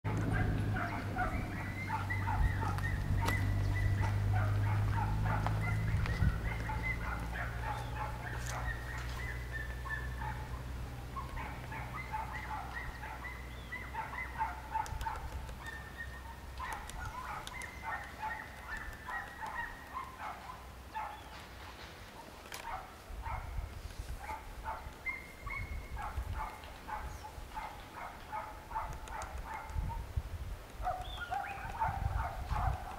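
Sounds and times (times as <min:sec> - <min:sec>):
woodpecker tapping: 0:00.1 - 0:21.4, 0:24.8 - 0:30.0, 0:30.6 - 0:32.9
birds calling: 0:00.1 - 0:32.9.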